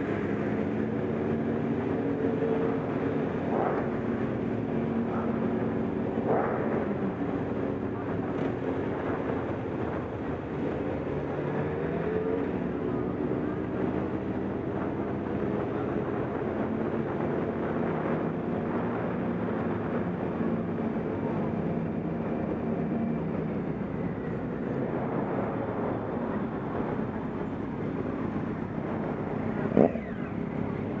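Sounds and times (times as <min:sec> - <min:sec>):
motorcycles riding at low revs: 0:00.0 - 0:31.0.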